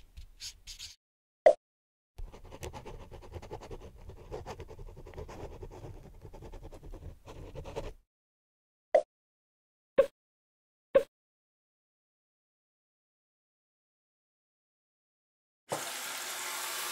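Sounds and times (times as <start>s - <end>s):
pen scribbling on paper: 2.2s - 8.0s.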